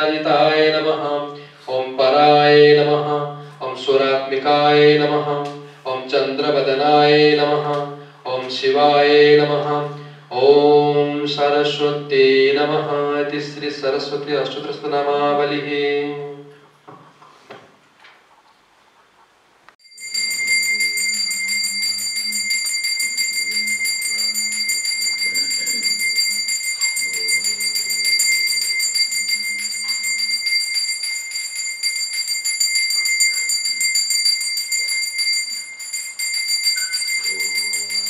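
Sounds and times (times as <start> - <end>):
handbell rung rapidly: 19.8 - 38.0.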